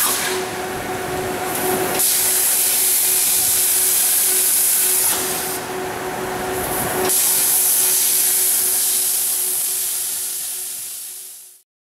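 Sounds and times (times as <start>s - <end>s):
plasma cutter hissing: 0.0s - 0.5s, 1.9s - 5.6s, 6.7s - 11.6s.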